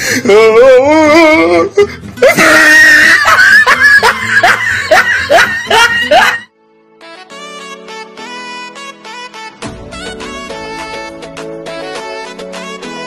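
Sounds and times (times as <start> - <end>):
background music: 0.0 - 13.0
people laughing and shrieking: 2.2 - 6.5.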